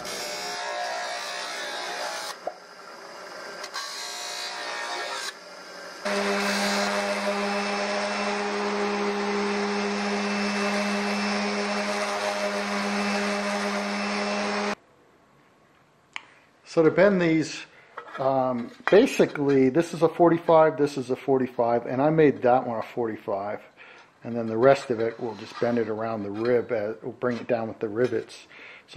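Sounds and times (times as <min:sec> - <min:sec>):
orbital sander humming: 0:06.0 - 0:14.8
grinder wheel rubbing metal edge: 0:24.4 - 0:26.7.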